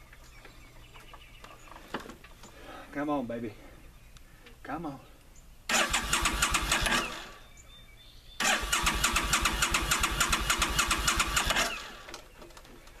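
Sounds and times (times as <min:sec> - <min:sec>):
motorcycle starter cranking: 0:05.7 - 0:07.4, 0:08.4 - 0:12.2.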